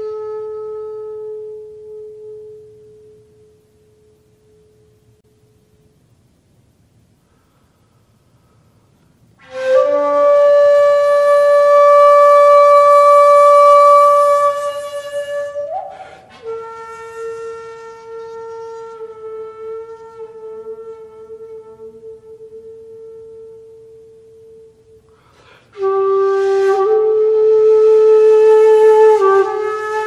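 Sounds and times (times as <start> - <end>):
breathy bamboo flute note: 9.4 - 30.0.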